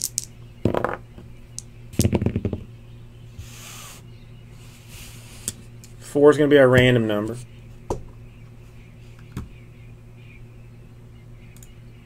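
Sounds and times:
dice knocking on a playmat: 2.0s - 2.6s.

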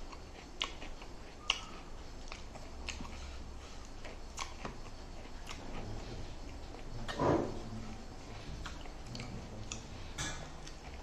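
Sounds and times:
mouth clicks: 1.4s - 3.1s.

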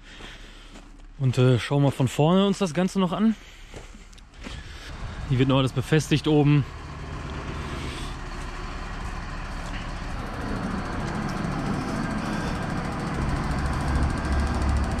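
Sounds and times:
diesel crane engine running: 3.4s - 15.0s.

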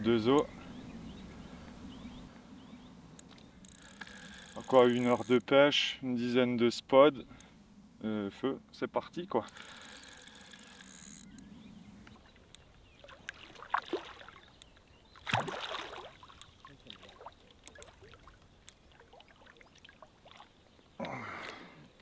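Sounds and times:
small clicks: 3.2s - 5.5s, 9.4s - 12.7s, 17.6s - 18.8s
fish splashing in water: 13.0s - 14.6s, 15.2s - 20.6s.

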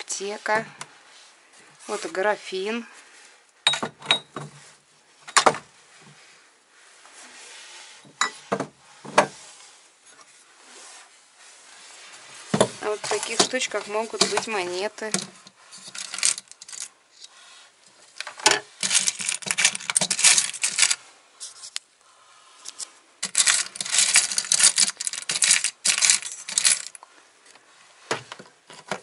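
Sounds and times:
small metal objects clinking: 15.1s - 16.9s, 18.2s - 21.0s, 23.2s - 27.0s.

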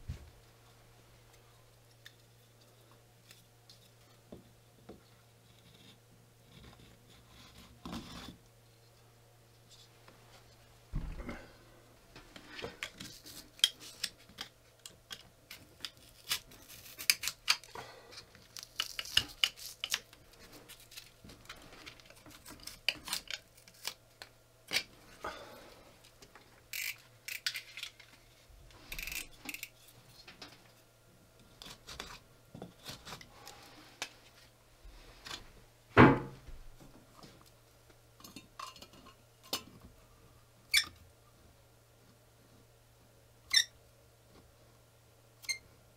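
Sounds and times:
knock: 36.0s - 36.4s.

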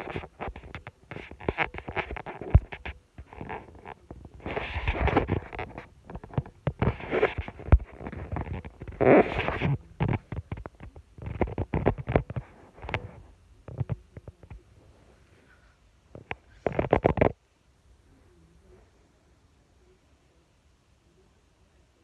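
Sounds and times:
sharp clicks and knocks: 0.0s - 14.7s, 16.1s - 17.4s
phone rustling against fabric: 0.0s - 17.4s.

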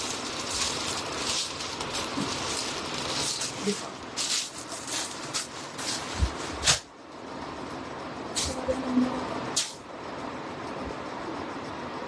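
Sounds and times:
clothing rustling and crinkling: 0.0s - 6.7s.

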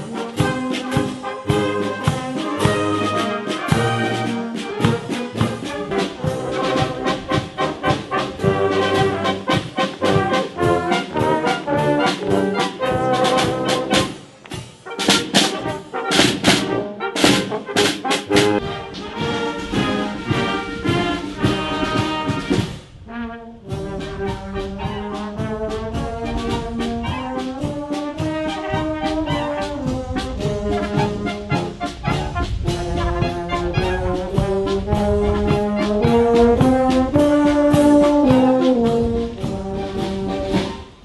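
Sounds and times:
brass marching band playing: 0.0s - 41.0s
bass drum beats: 23.7s - 40.0s.

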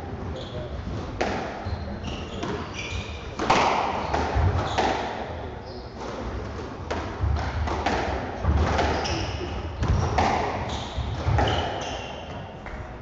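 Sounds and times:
shoes squeaking on court floor: 0.3s - 0.8s, 1.5s - 6.3s, 8.7s - 12.8s
squash ball hits echoing: 1.2s - 1.6s, 2.4s - 5.4s, 6.0s - 13.0s.

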